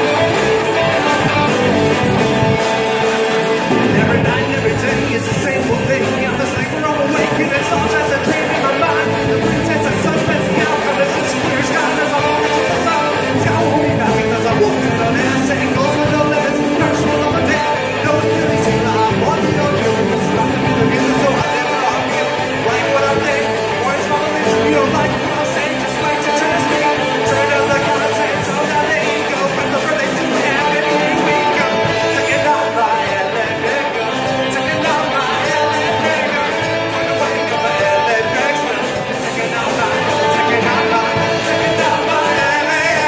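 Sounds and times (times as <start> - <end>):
loud electric guitars: 0.0 - 43.0
person singing: 0.0 - 43.0
rock band playing live: 0.0 - 43.0.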